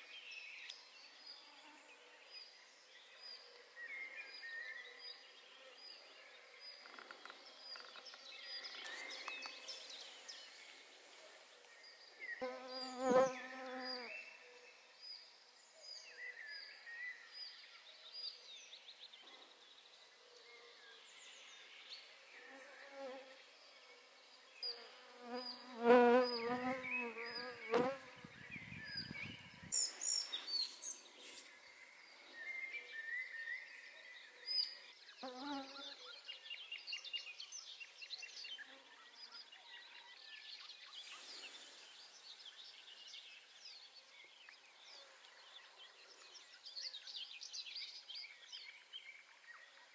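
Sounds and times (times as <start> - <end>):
small birds chirping: 0.0 - 49.9
flying insect buzzing: 12.4 - 14.1, 24.8 - 28.2.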